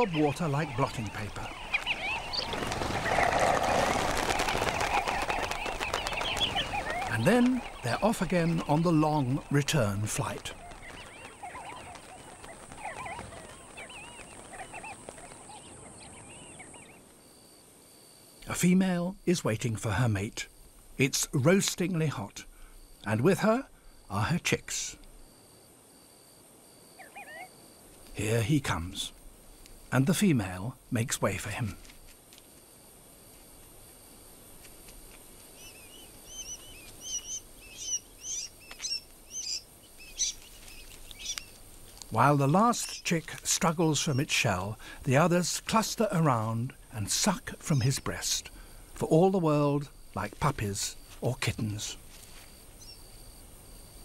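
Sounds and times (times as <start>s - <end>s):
chicks peeping: 0.0s - 9.5s, 10.3s - 15.7s
flock of birds chirping: 0.0s - 26.1s, 26.8s - 54.0s.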